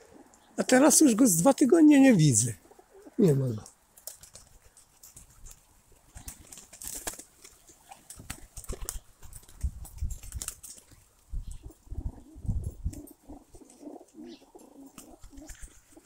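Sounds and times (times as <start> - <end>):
pigeon cooing: 2.6 - 3.7, 11.6 - 16.0
pigeons pecking and stepping: 2.6 - 16.0
microphone rumbles: 11.4 - 13.0.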